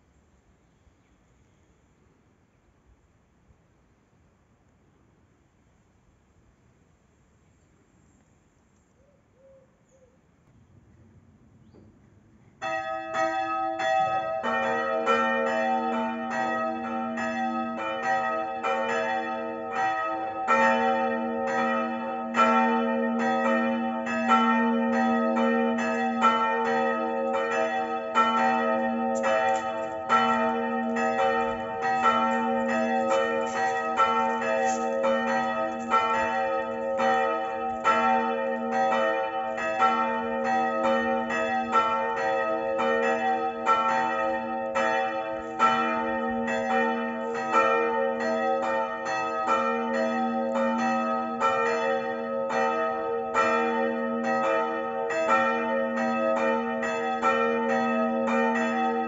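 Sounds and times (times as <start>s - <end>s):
church bells ringing: 12.6s - 59.0s.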